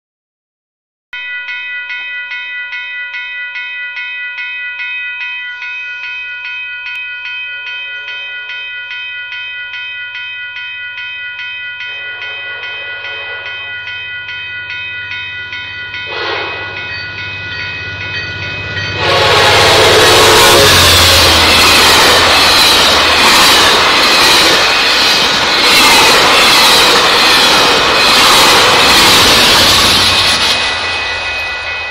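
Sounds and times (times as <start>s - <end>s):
level-crossing bell ringing: 1.2s - 31.9s
train horn: 11.9s - 13.7s, 16.0s - 16.9s, 18.9s - 22.6s
train wheels clacking on rails: 15.9s - 31.9s.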